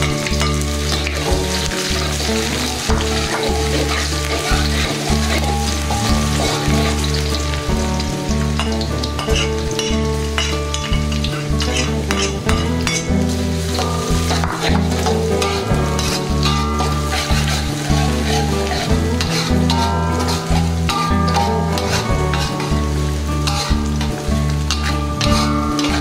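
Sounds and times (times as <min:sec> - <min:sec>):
background music with low notes: 0:00.0 - 0:26.0
food sizzling in hot oil: 0:00.0 - 0:26.0
metal spatula scraping a wok: 0:00.0 - 0:26.0.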